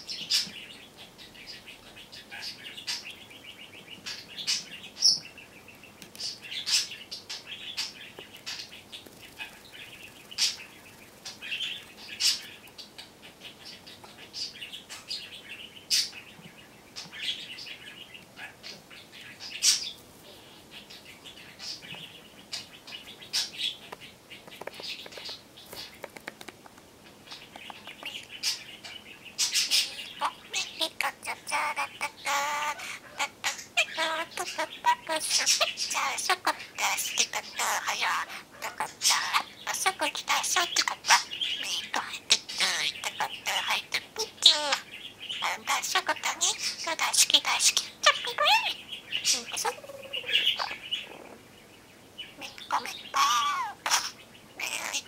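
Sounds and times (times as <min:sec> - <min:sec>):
budgerigar chattering: 0:27.3 - 0:51.5, 0:52.2 - 0:55.0.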